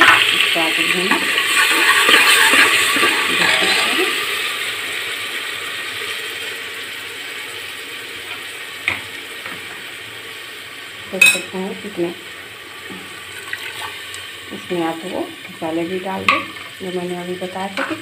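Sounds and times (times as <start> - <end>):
paste sizzling in hot oil: 0.0 - 18.0
ladle strokes against pot: 1.5 - 4.1.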